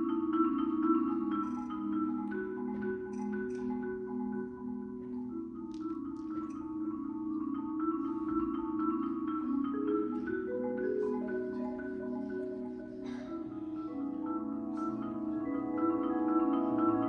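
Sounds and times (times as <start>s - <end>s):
marimbas playing fast pattern: 0.0s - 17.0s.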